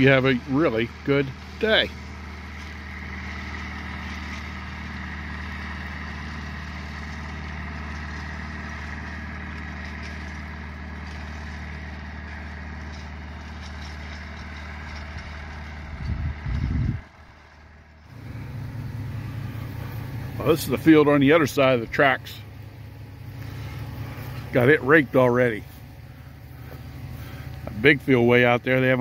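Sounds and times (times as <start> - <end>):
engine running steadily: 0.0 - 29.0
loud low rumble: 15.2 - 28.8.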